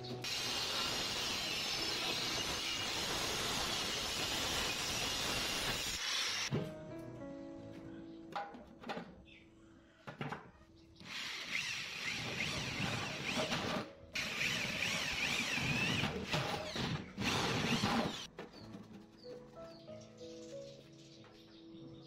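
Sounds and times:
electric drill boring through steel: 0.2 - 6.5, 11.0 - 18.3.

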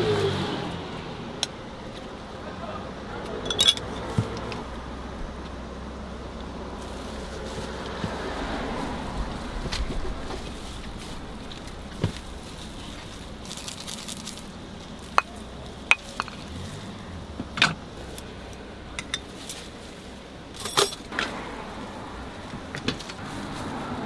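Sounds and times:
steady low hum: 0.6 - 24.0
metal bowls and utensils clinking: 3.4 - 4.1, 15.1 - 16.6, 18.9 - 19.6, 20.6 - 21.1.

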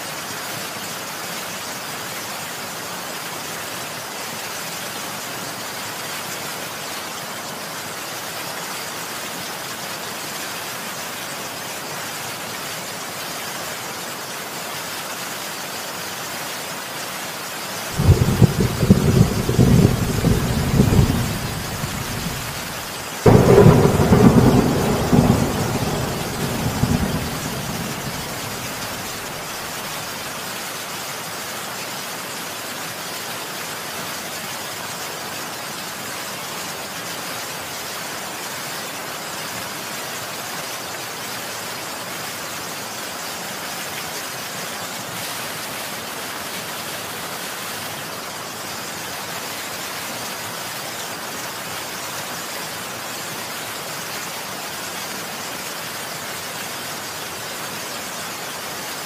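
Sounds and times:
heavy rain falling: 0.1 - 59.0
thunder rumble: 18.0 - 29.9.

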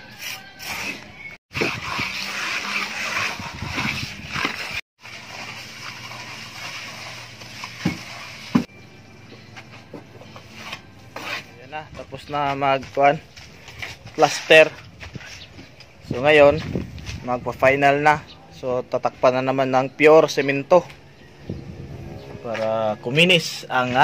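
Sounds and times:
trowel scraping on plaster: 0.0 - 8.7, 10.3 - 11.6.

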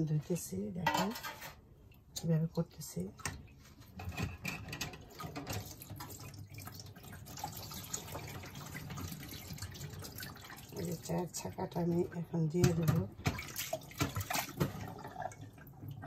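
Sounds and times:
tap water running into sink: 3.2 - 11.2, 12.6 - 16.0.

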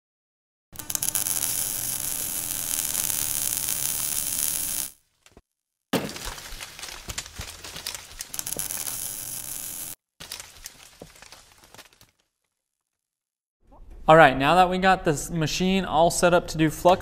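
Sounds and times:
sizzling hiss: 0.8 - 5.0, 8.4 - 10.0
irregular crackling: 0.8 - 5.4, 6.1 - 13.0.

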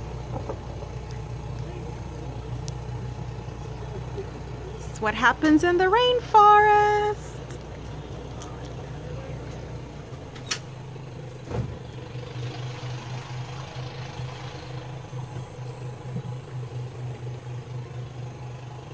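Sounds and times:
boat motor humming: 0.0 - 18.9
thump: 11.4 - 11.8.

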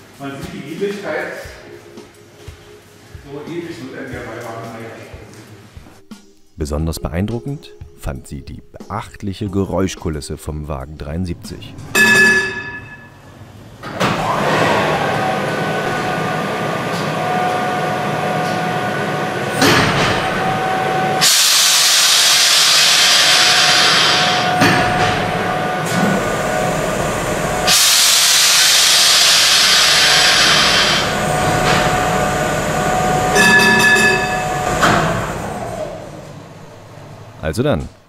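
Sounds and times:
tram machine hum with whine: 10.8 - 38.0
loud air hiss: 17.0 - 35.8.

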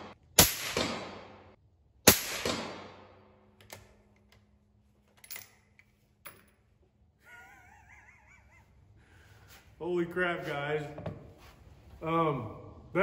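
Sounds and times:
suppressed rifle shot: 2.1 - 3.2.

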